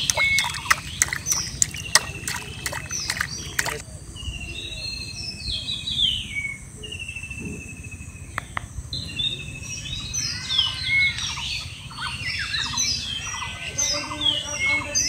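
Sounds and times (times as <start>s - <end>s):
bird trilling: 0.0s - 3.8s
birds chirping: 0.0s - 15.0s.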